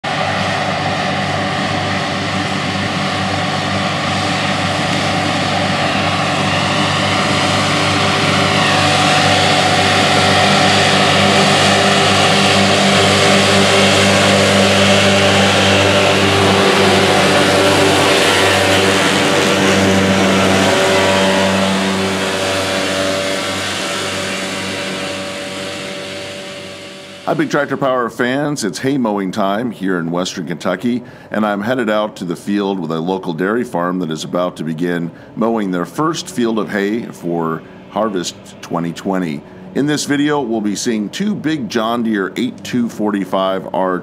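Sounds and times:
tractor diesel engine under load: 0:00.0 - 0:44.0
mower whirring hiss: 0:00.1 - 0:28.1.

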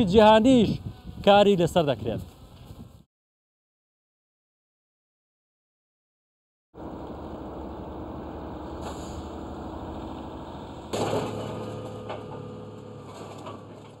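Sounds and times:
excavator engine hum: 0:06.8 - 0:14.0
loud metal clatter: 0:08.7 - 0:14.0
scrap metal rattling: 0:08.7 - 0:14.0.

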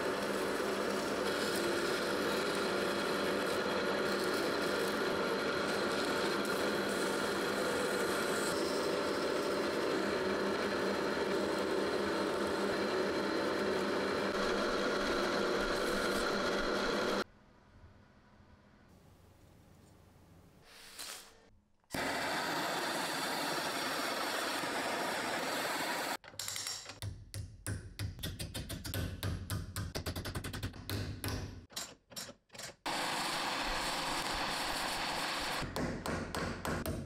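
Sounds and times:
gas torch flame hissing: 0:20.6 - 0:26.2, 0:32.9 - 0:35.6.

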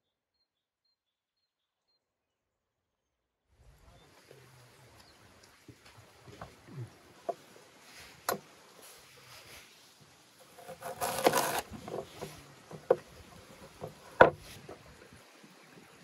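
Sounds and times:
knife cutting through fruit: 0:10.4 - 0:14.7
knife knocking on wooden board: 0:11.0 - 0:14.4.

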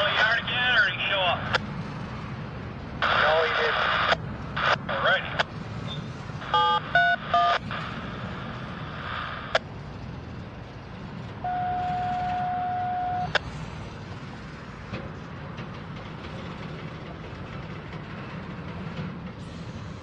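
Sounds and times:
steady radio tone: 0:00.0 - 0:01.6, 0:03.0 - 0:09.6
radio scanner beeps: 0:03.0 - 0:09.6, 0:11.5 - 0:13.4.

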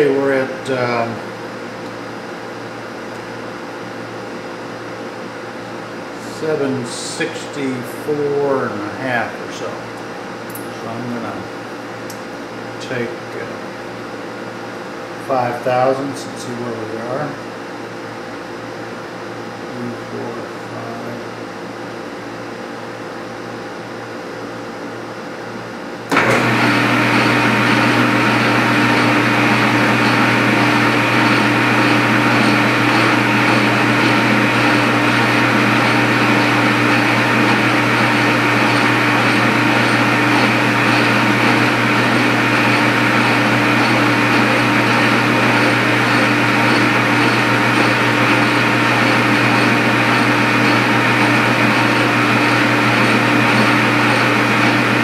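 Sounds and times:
metal lathe humming and whining: 0:26.1 - 0:55.0.

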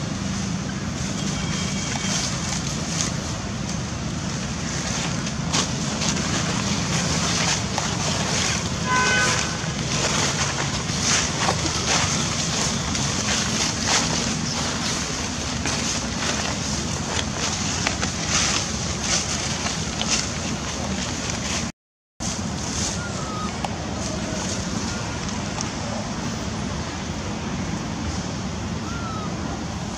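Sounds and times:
high-pitched call: 0:22.9 - 0:25.2, 0:28.8 - 0:29.5.

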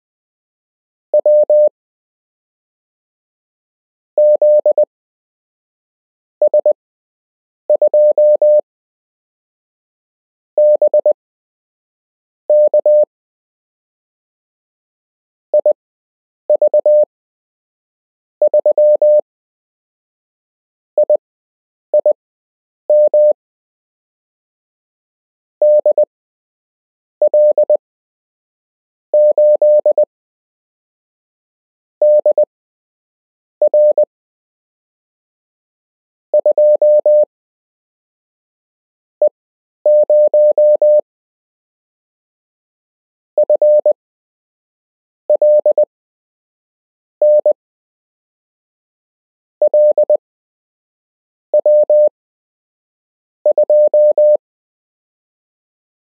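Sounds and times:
morse code tone: 0:01.2 - 0:01.7, 0:04.2 - 0:04.8, 0:07.9 - 0:08.6, 0:10.6 - 0:11.1, 0:12.5 - 0:13.1, 0:16.6 - 0:17.0, 0:18.5 - 0:19.2, 0:22.9 - 0:23.3, 0:25.6 - 0:26.0, 0:27.3 - 0:27.8, 0:29.2 - 0:30.0, 0:32.0 - 0:32.4, 0:33.7 - 0:34.0, 0:36.4 - 0:37.3, 0:39.9 - 0:41.0, 0:43.4 - 0:43.9, 0:45.4 - 0:45.8, 0:47.2 - 0:47.6, 0:49.7 - 0:50.2, 0:51.6 - 0:52.1, 0:53.5 - 0:54.4.

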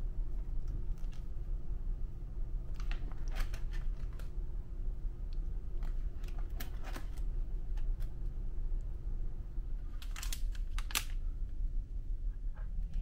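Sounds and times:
low steady hum: 0:00.0 - 0:13.0
plastic binder pages turning: 0:02.7 - 0:04.4, 0:05.8 - 0:08.2, 0:09.8 - 0:11.2.

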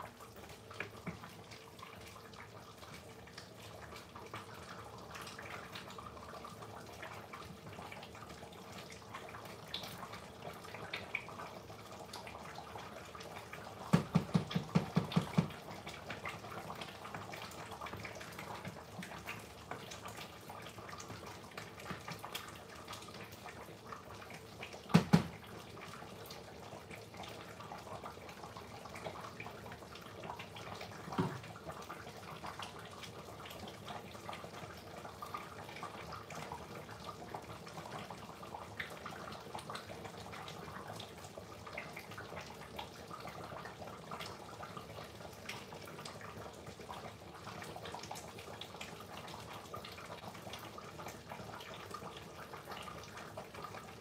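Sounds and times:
stew bubbling in pot: 0:00.0 - 0:54.0
sharp knocks: 0:13.9 - 0:15.5, 0:24.9 - 0:25.4.

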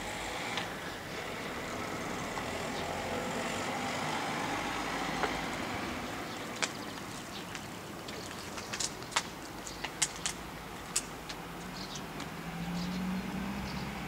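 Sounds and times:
vehicle passing: 0:00.0 - 0:08.0, 0:11.4 - 0:14.0.

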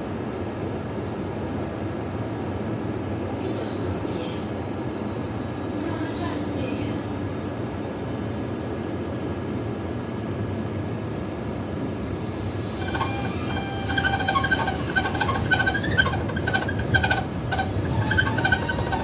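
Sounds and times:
tram rumbling on track: 0:11.2 - 0:19.0
wheels squealing: 0:12.1 - 0:19.0.

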